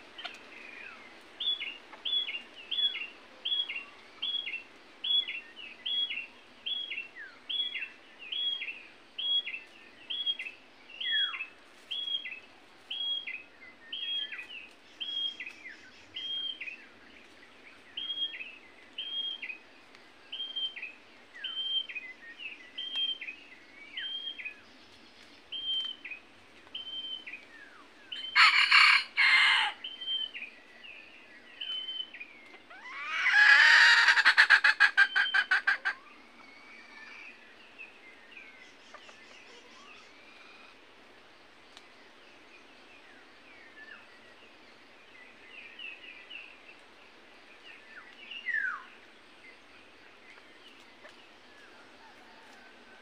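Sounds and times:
loud harsh bird calls: 28.2 - 30.3, 32.6 - 36.7
rooster crowing loudly: 28.3 - 29.8, 33.0 - 34.5.

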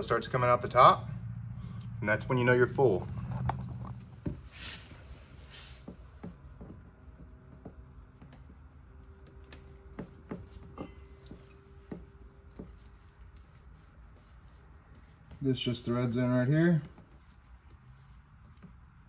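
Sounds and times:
small clicks and light knocks: 6.6 - 10.4.

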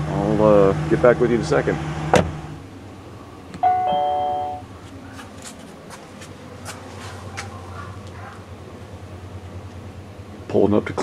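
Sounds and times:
low steady hum: 0.0 - 11.0
electronic chime: 3.6 - 4.6.

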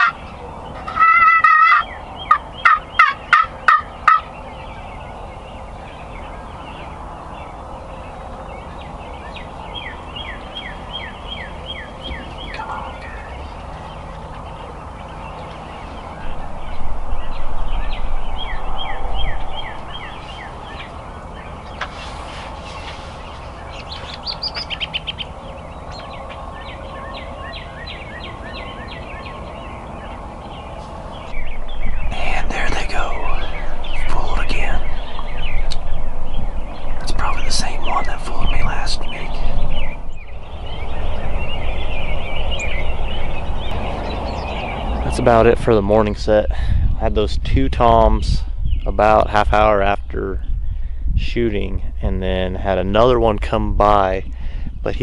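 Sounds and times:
turkeys gobbling: 0.0 - 4.3, 23.4 - 26.4
low rumble: 10.4 - 55.0.

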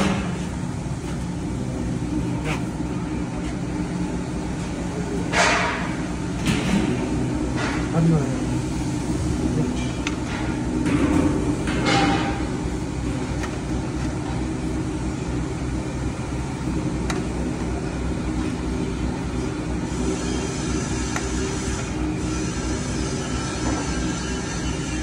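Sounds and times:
agitator churning powder: 7.9 - 25.0
powder mixer motor droning: 12.5 - 25.0.

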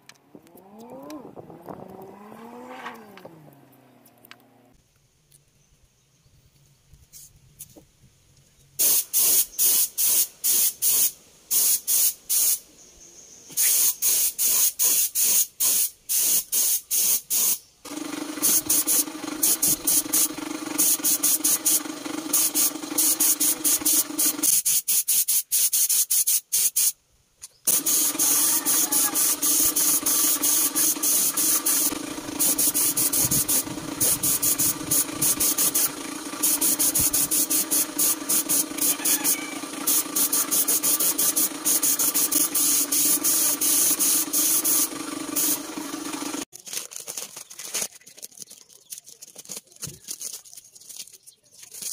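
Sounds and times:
paint spray gun hissing: 8.8 - 12.6, 13.5 - 26.9, 27.7 - 46.5
steady machine hum: 17.9 - 24.4, 29.2 - 46.5.

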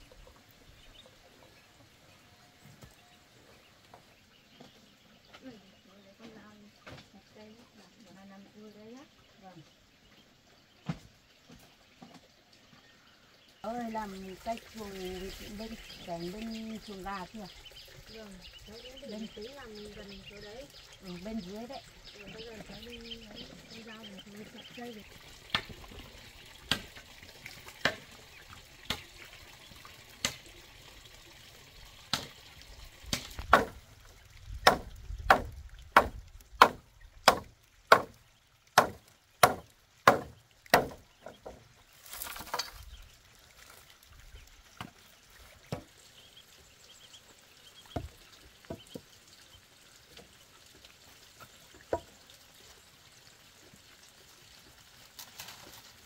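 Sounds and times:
machete chopping bamboo: 26.7 - 27.0, 27.8 - 28.1, 33.1 - 33.8, 34.6 - 38.1, 38.8 - 41.0.

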